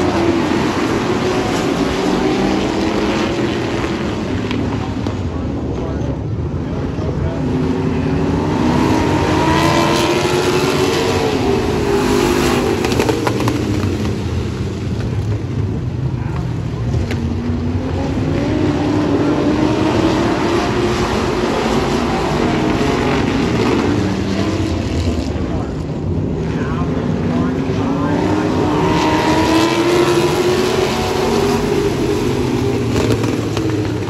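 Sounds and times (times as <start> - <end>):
race car engines running hard: 0.0 - 34.0.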